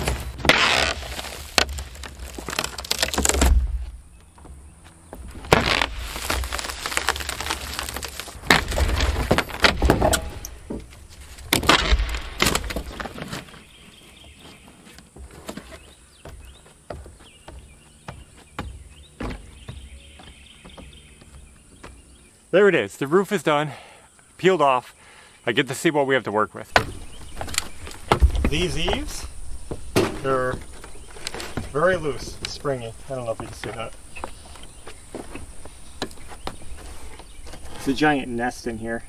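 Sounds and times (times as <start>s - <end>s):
wood cracking and splintering: 0.0s - 4.5s, 5.2s - 13.7s.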